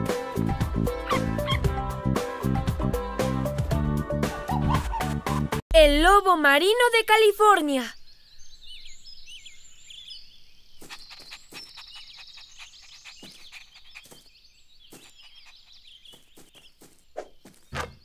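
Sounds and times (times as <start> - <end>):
small birds chirping: 6.4 - 18.0.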